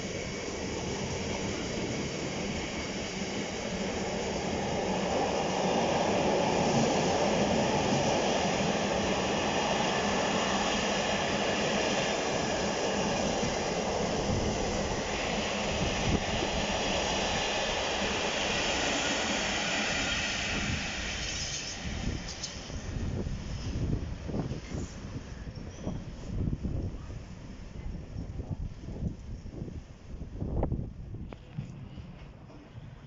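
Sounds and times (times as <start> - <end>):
diesel locomotive passing: 0.0 - 25.4
train wheels rumbling on rail: 0.0 - 29.8.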